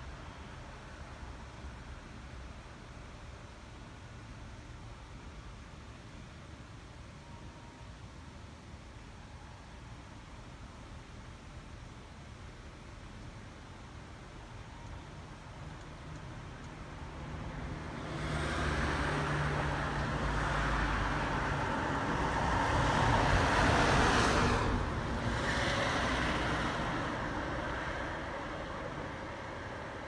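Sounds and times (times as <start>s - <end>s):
vehicles driving by: 15.8s - 30.0s.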